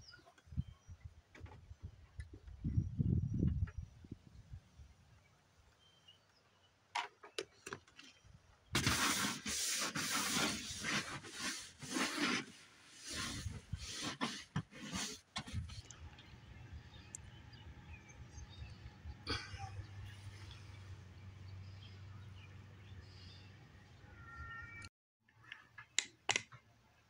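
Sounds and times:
scrub brush scrubbing: 8.8 - 15.9.

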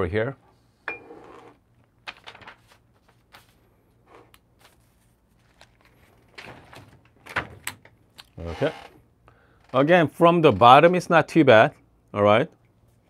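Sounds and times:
paper rustling on a desk: 2.0 - 7.2.

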